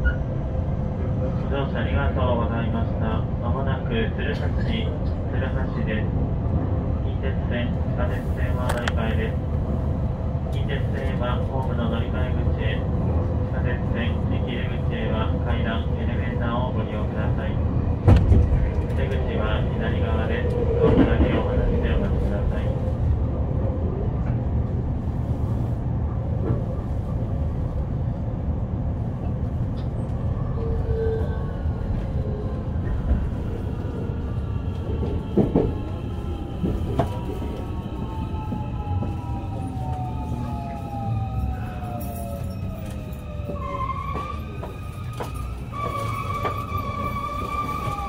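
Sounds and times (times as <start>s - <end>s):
train running rumble: 0.0s - 48.0s
high brake squeal: 43.6s - 48.0s.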